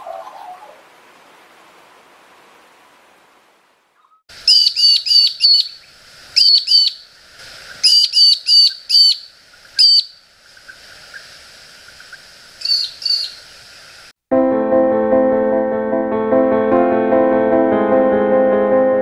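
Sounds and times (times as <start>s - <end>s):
bird calling sharp short notes: 4.0s - 7.0s, 7.8s - 10.2s, 12.6s - 13.4s.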